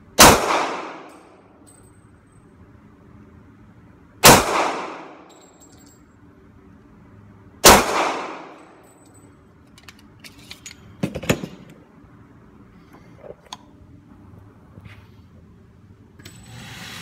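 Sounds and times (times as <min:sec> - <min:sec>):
pistol shots echoing indoors: 0:00.2 - 0:01.6, 0:04.2 - 0:05.4, 0:07.6 - 0:08.8
handling clicks and knocks: 0:08.8 - 0:11.8.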